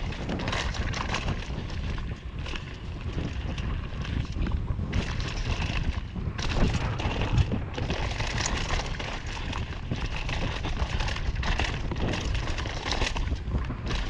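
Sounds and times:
bike clattering over bumps: 0.0s - 14.0s
bike tyres rumbling over dirt: 0.0s - 14.0s
wind rushing over microphone: 0.0s - 14.0s.

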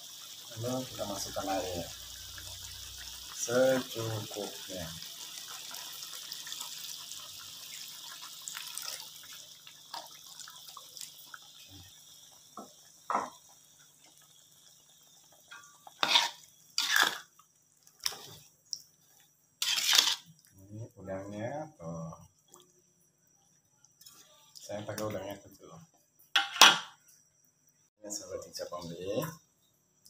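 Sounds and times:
water pouring into wok: 0.0s - 20.5s.

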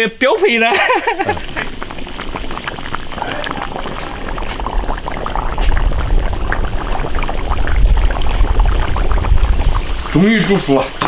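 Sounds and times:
sauce bubbling in a pot: 1.0s - 11.0s
low rumble: 2.3s - 10.2s.

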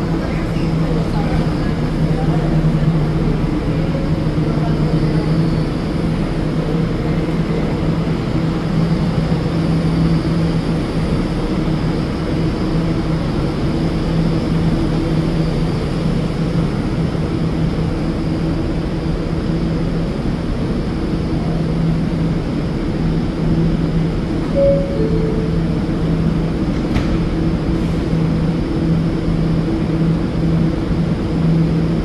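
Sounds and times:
subway train humming: 0.0s - 32.0s.

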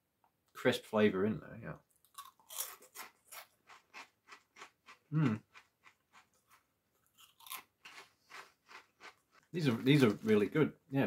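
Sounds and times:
crunchy snacks being chewed: 1.9s - 10.4s
low voice hum: 5.1s - 5.4s.

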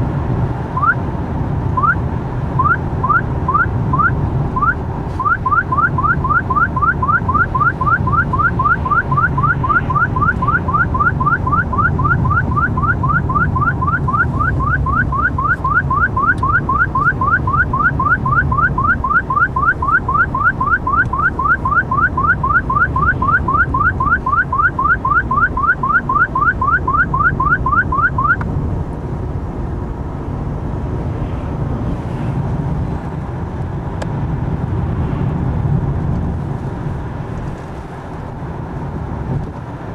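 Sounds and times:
road and engine noise in car: 0.0s - 39.9s
radar detector beeping: 0.8s - 1.0s, 1.8s - 2.0s, 2.6s - 28.4s.

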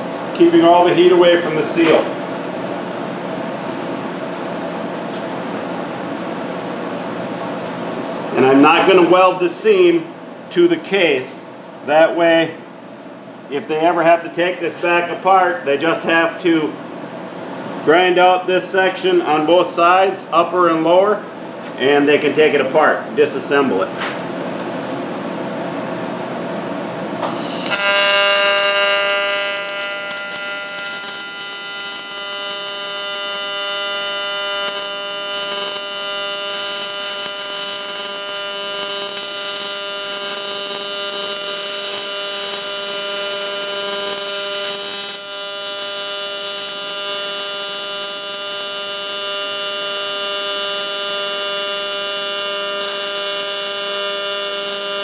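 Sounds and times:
welding arc buzzing: 27.2s - 55.0s.

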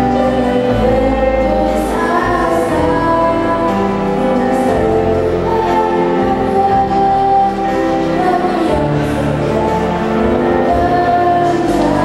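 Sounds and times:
children's choir singing: 0.0s - 12.0s
girl singing into microphone: 0.0s - 12.0s
instrumental backing with bass: 0.0s - 12.0s.

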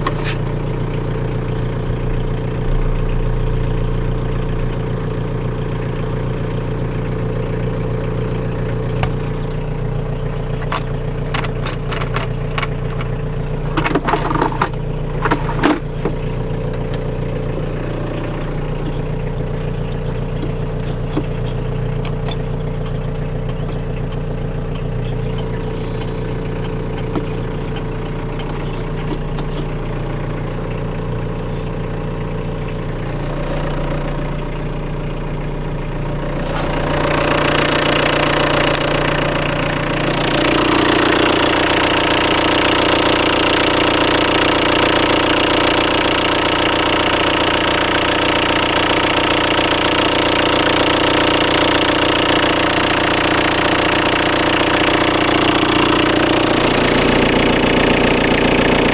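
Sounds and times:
diesel engine idling: 0.0s - 58.9s
sharp clicks: 10.6s - 13.2s.

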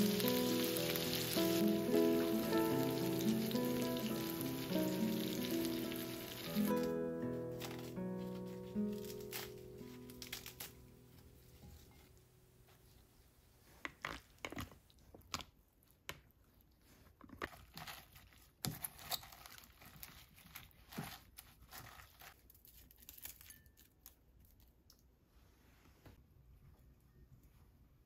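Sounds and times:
leaves rustling in a bowl: 0.0s - 12.2s.

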